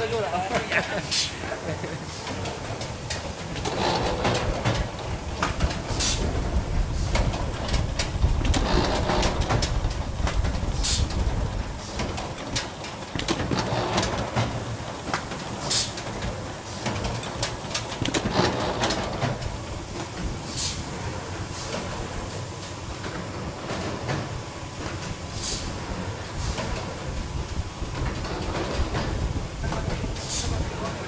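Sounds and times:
conveyor machine clattering: 0.0 - 31.0
short sharp hiss: 20.5 - 20.8, 25.3 - 25.7.

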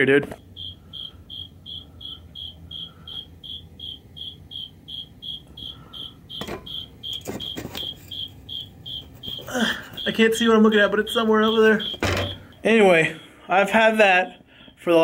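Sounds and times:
cricket chirping: 0.3 - 12.8.

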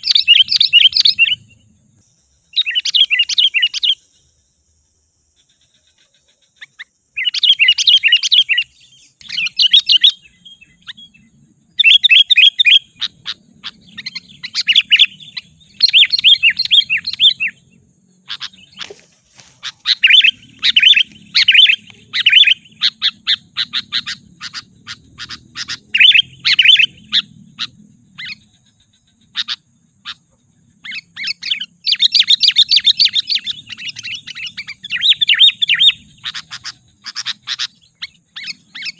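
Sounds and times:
bulbul singing: 0.0 - 4.5, 5.2 - 38.9.

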